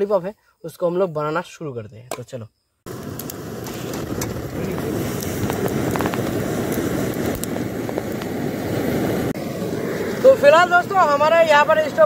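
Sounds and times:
burner flame rushing: 2.9s - 12.0s
stove burner flaring up: 2.9s - 12.0s.

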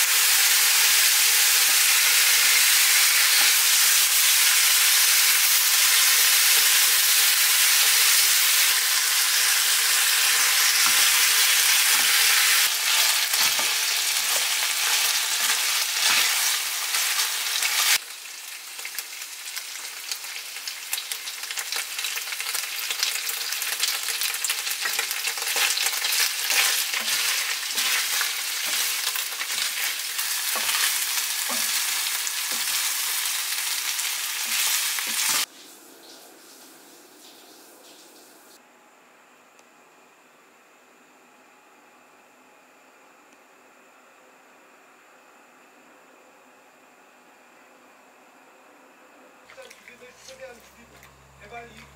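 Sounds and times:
food sizzling in a frying pan: 0.0s - 35.5s
utensils clicking and scraping pan: 24.8s - 33.0s.

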